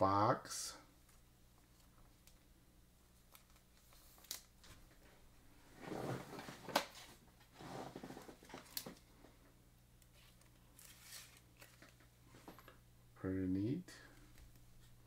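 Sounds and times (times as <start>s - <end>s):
low steady hum: 0.0s - 15.0s
cards rustling: 10.0s - 12.1s.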